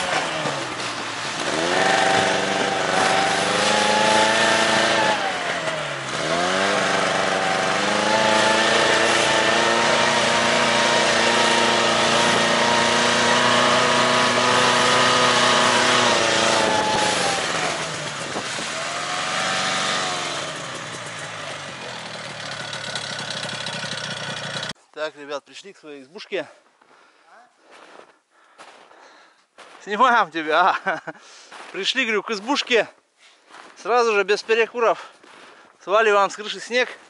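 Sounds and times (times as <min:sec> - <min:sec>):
snowmobile engine running: 0:00.0 - 0:24.8.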